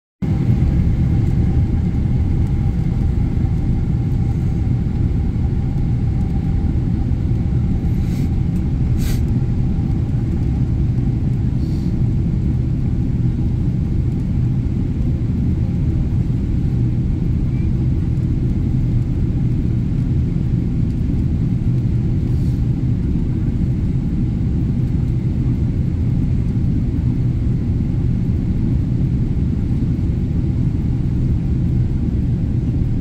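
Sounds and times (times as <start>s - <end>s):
airplane cabin rumble: 0.2s - 33.0s.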